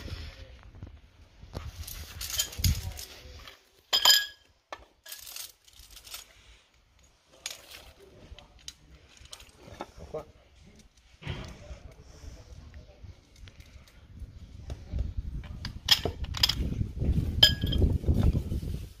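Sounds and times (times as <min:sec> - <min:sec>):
metal hardware clinking: 0:03.9 - 0:06.4, 0:17.4 - 0:17.9
ringing metallic clink: 0:17.4 - 0:17.8.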